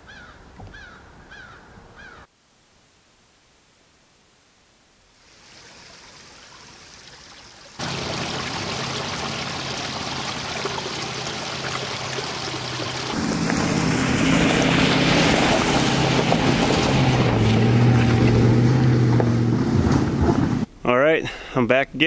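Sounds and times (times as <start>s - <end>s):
truck engine under load: 7.8s - 20.7s.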